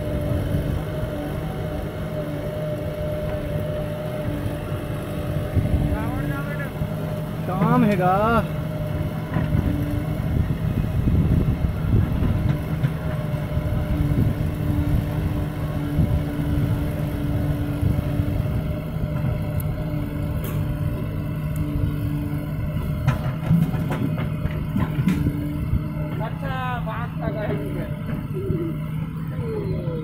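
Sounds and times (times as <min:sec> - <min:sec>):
diesel engines droning: 0:00.0 - 0:30.0.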